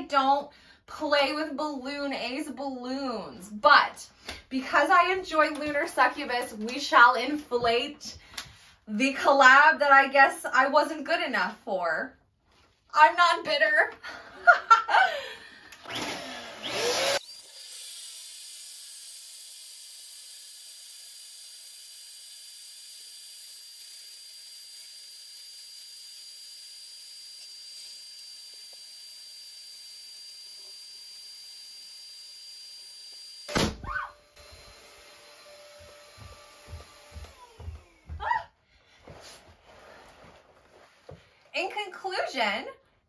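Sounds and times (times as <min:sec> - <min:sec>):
balloon pump whining: 0:20.2 - 0:38.6
balloon bursting bang: 0:33.5 - 0:34.1.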